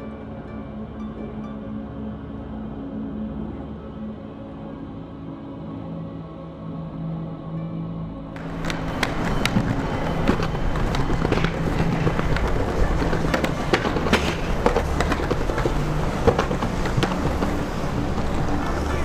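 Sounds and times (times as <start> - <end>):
skateboard wheels clacking: 8.4 - 19.0
street traffic hum: 8.4 - 19.0.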